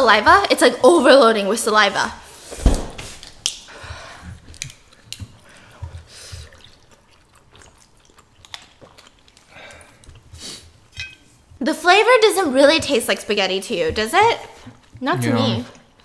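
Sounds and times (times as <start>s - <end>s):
chewing noodles: 3.6s - 11.5s
wet mouth clicks: 4.4s - 10.5s.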